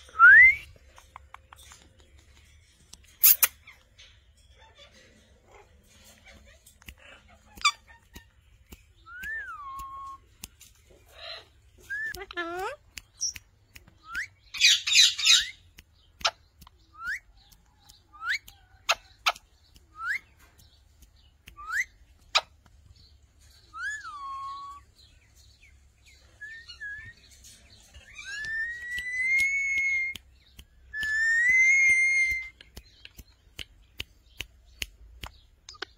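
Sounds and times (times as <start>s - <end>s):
sharp ticks: 6.6s - 11.0s, 15.4s - 22.9s, 28.4s - 35.9s.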